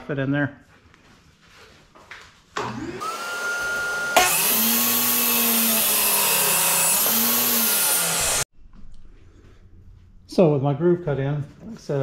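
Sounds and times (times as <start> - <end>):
table saw running: 2.6 - 8.5
saw blade biting into wood: 4.2 - 8.4.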